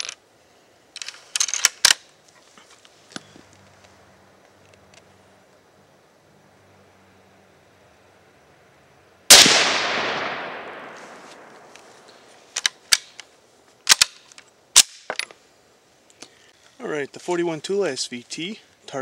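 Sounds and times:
rifle shot: 0:09.3 - 0:11.6.

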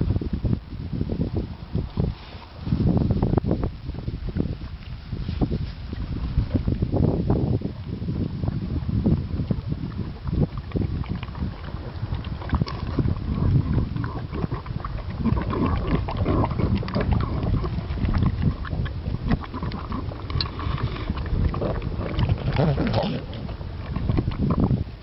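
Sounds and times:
dog chewing and smacking: 0:09.9 - 0:24.8.

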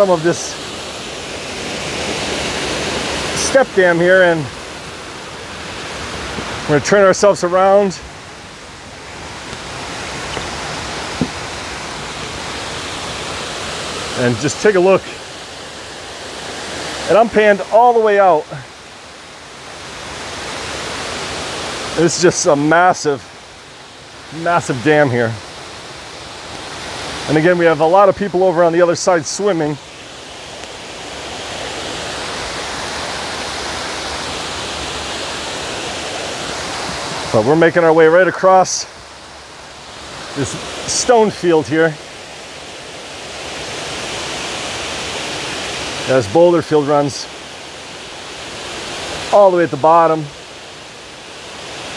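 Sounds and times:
water rushing down stone steps: 0:00.0 - 0:07.7
small knock: 0:11.2 - 0:11.4.

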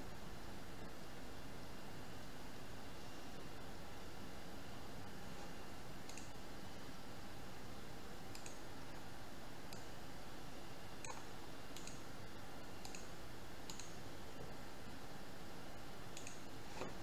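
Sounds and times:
background hiss: 0:00.0 - 0:17.0.

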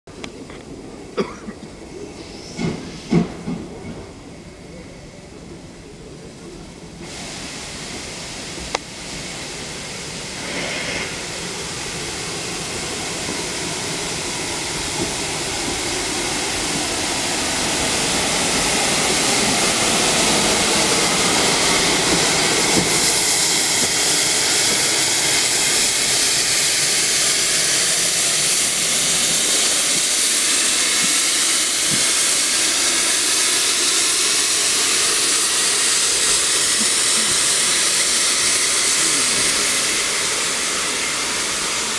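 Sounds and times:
steam locomotive running slowly: 0:00.1 - 0:41.9
steam hissing: 0:01.8 - 0:41.9.

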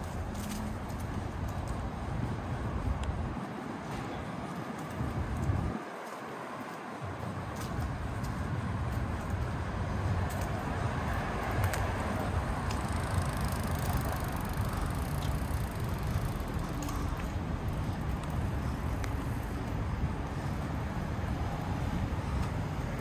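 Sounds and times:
traffic rumble: 0:00.0 - 0:23.0.

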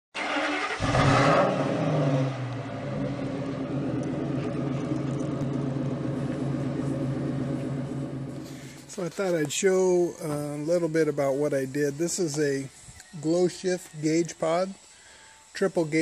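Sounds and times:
engine revving then idling: 0:00.2 - 0:09.0.

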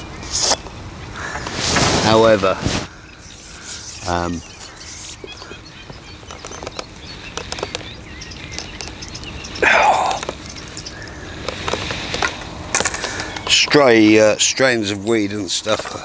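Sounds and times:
birds chirping faintly: 0:00.0 - 0:16.0
landing net noise burst: 0:01.5 - 0:03.0
fishing tackle clicks and rustles: 0:05.0 - 0:13.8.

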